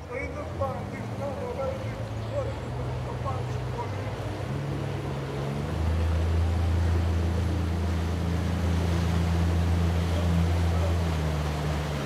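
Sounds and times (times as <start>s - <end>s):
boat motor droning: 0.0s - 12.0s.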